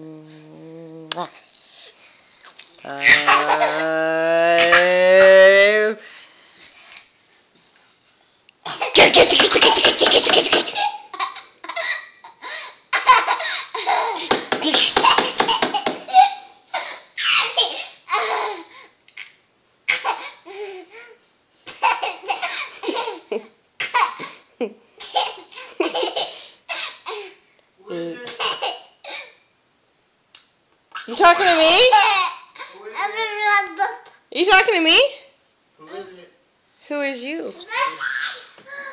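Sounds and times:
toddler laughing: 2.9s - 5.5s, 8.8s - 12.0s, 37.6s - 38.9s.

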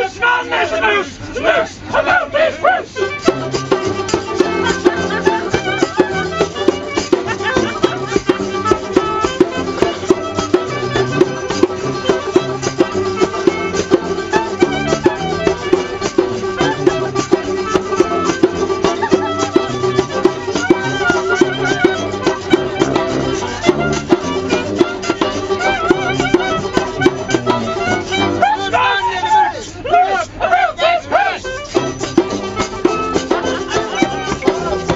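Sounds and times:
folk band playing: 0.0s - 34.9s
banjo: 1.1s - 34.9s
brass bass horn: 3.0s - 18.9s, 19.6s - 28.5s
hand drum: 3.0s - 28.8s, 31.4s - 34.9s.

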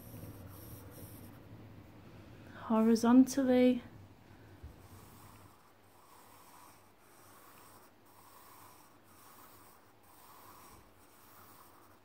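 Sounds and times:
pencil scratching on paper: 0.0s - 1.4s, 4.8s - 12.0s.

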